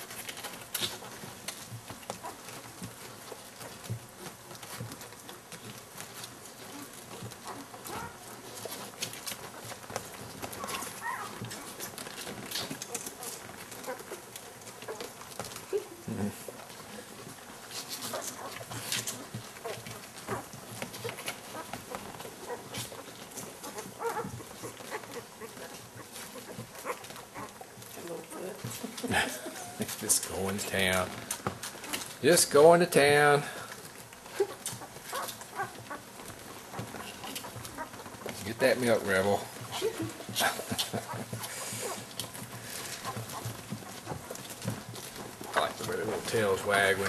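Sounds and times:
puppies squeaking and whimpering: 0:06.6 - 0:29.9, 0:33.8 - 0:40.3, 0:40.9 - 0:47.0
puppy crying: 0:10.5 - 0:11.9, 0:23.6 - 0:27.6.

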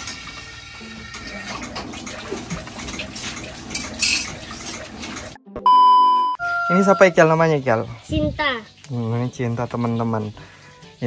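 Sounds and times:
water splashing: 0:00.9 - 0:05.4.

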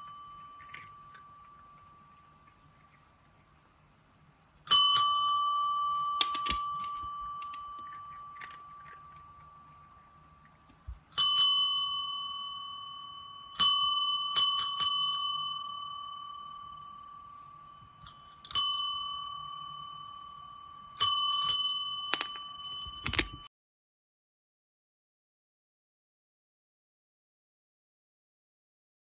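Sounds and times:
service bell dinging: 0:00.0 - 0:02.3, 0:04.7 - 0:09.7, 0:11.2 - 0:23.5.

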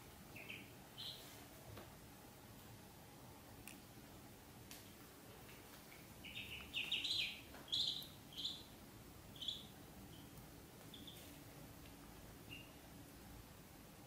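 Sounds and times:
ducklings peeping: 0:00.3 - 0:01.3, 0:06.1 - 0:11.4, 0:12.4 - 0:12.8.

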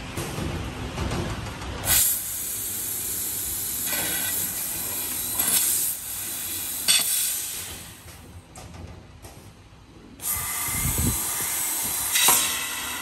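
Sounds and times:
laser cutter gas jet hiss: 0:01.9 - 0:08.0, 0:10.2 - 0:13.0.

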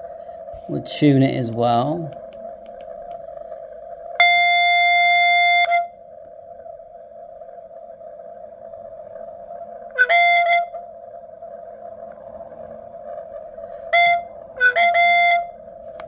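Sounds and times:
radio band noise hiss: 0:00.0 - 0:16.0
steady radio beep: 0:04.2 - 0:06.0.

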